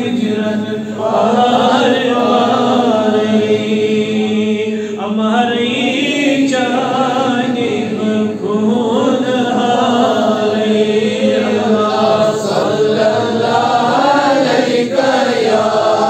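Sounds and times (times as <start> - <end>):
man chanting into a microphone: 0.0 - 16.0.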